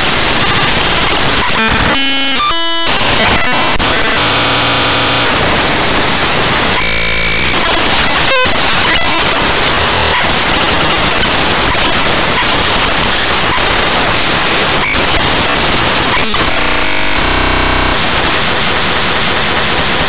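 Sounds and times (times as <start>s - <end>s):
short buzzing tone: 0.0s - 5.4s, 6.2s - 13.9s, 16.1s - 18.2s
harsh static: 0.0s - 20.0s.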